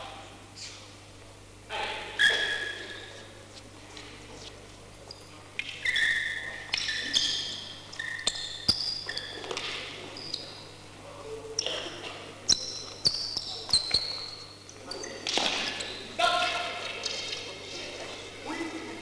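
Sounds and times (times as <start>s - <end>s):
shoes squeaking on gym floor: 2.2s - 3.3s, 4.5s - 10.7s, 11.6s - 16.1s.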